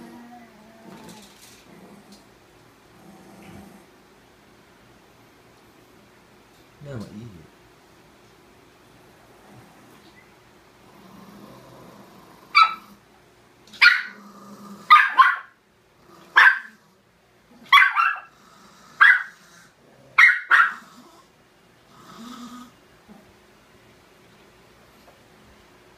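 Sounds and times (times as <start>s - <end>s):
dogs growling: 0.0s - 4.0s, 9.1s - 10.0s, 10.8s - 13.1s, 14.0s - 15.2s, 15.9s - 23.4s
small dogs barking: 12.5s - 13.0s, 13.7s - 14.2s, 14.8s - 15.6s, 16.3s - 16.8s, 17.6s - 19.5s, 20.1s - 21.0s.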